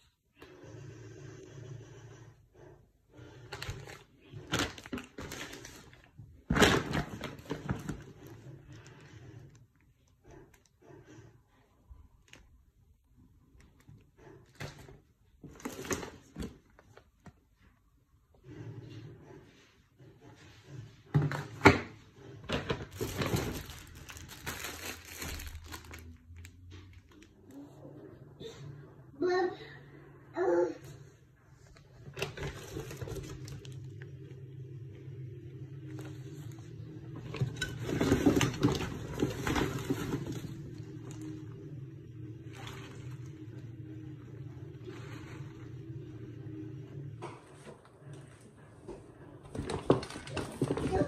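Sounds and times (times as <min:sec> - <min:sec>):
plastic packaging crinkling: 0:03.5 - 0:08.1, 0:22.7 - 0:27.3, 0:32.2 - 0:34.0, 0:37.2 - 0:41.4.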